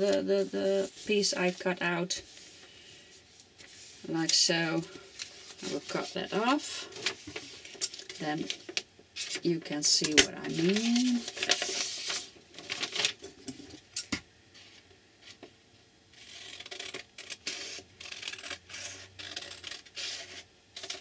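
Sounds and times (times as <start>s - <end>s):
paper rustling: 10.4s - 13.2s.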